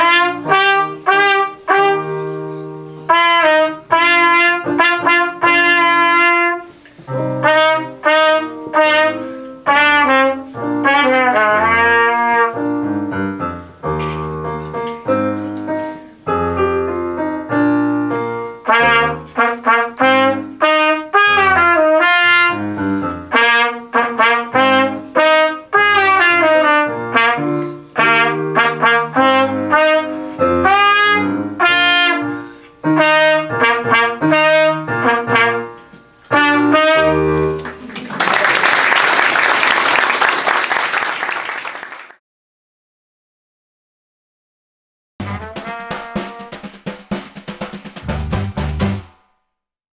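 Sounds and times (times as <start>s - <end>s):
solo trumpet melody: 0.0s - 14.6s, 15.2s - 37.6s, 45.2s - 46.6s
piano accompaniment: 0.0s - 38.0s, 45.2s - 49.2s.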